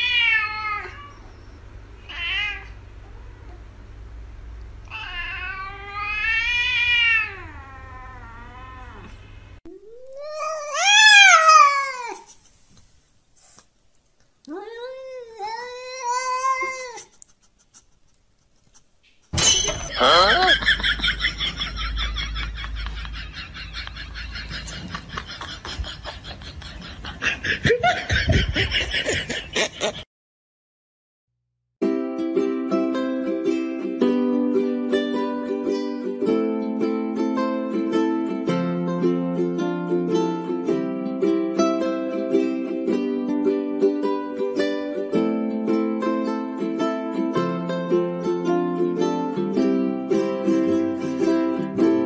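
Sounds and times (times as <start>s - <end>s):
cats meowing: 0.0s - 1.3s, 2.0s - 3.5s, 4.9s - 12.3s, 14.5s - 17.1s
person laughing in breathy snickers: 20.0s - 30.0s.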